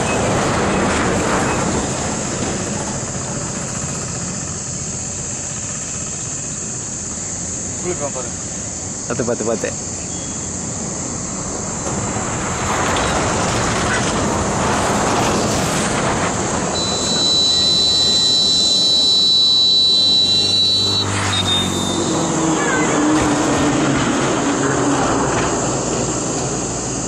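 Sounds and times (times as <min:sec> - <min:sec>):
passing engine rumble: 0:11.4 - 0:26.9
high-pitched whine: 0:15.4 - 0:27.0.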